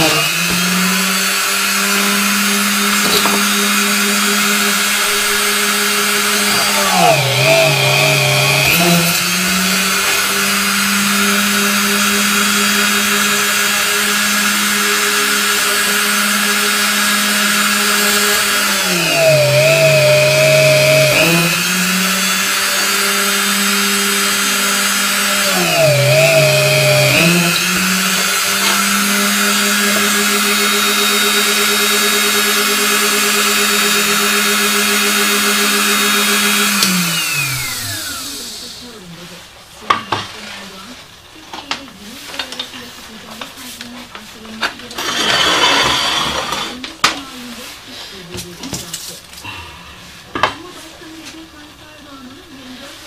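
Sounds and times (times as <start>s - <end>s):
rotary tool running high speed: 0.0s - 39.0s.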